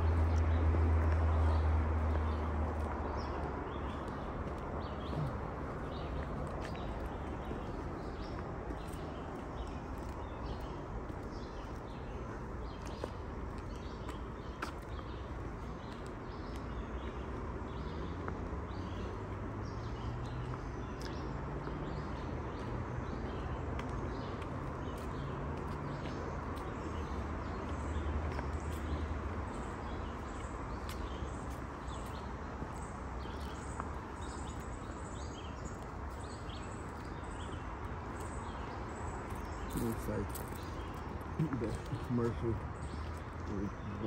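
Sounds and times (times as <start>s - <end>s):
birds chirping: 0.0s - 44.0s
footsteps on paved trail: 0.0s - 44.0s.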